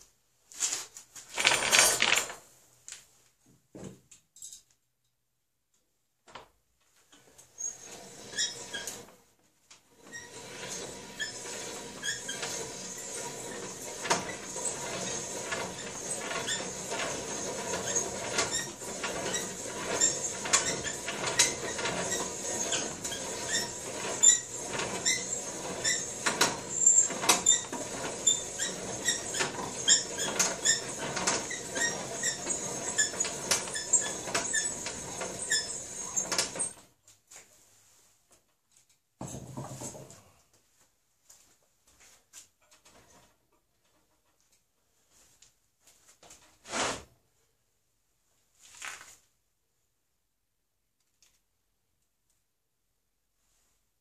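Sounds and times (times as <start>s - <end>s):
reamer scraping with squeaks: 7.5s - 9.2s, 9.9s - 36.8s.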